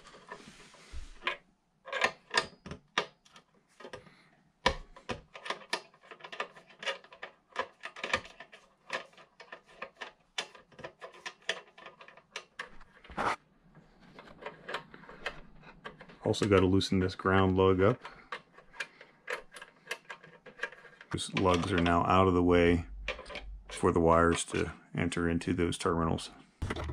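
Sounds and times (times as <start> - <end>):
metal scrape: 13.1 - 13.4.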